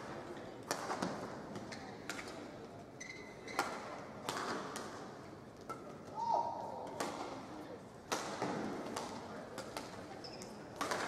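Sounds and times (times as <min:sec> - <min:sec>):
indoor hall hum: 0:00.0 - 0:11.0
rackets hitting shuttlecock: 0:00.6 - 0:02.4, 0:03.5 - 0:05.0, 0:06.8 - 0:07.5, 0:08.1 - 0:10.1, 0:10.8 - 0:11.0
shoe squeaking on court: 0:03.0 - 0:03.7, 0:10.2 - 0:10.6.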